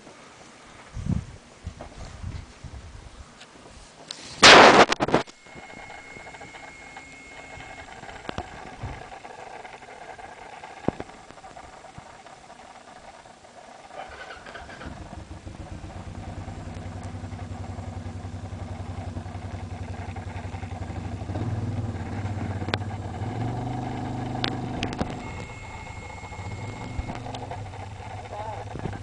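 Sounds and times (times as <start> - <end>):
sharp clicks: 4.4 - 15.1, 22.1 - 29.0
motorcycle engine running: 4.6 - 29.0.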